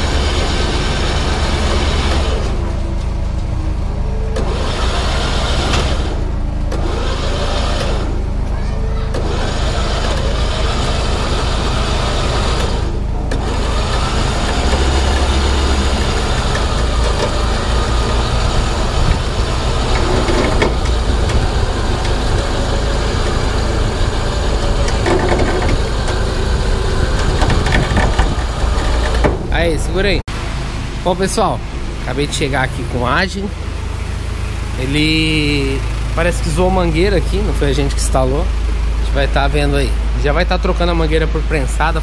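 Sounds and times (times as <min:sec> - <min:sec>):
winch pulling cable: 0:00.0 - 0:30.2
truck engine running: 0:00.0 - 0:42.0.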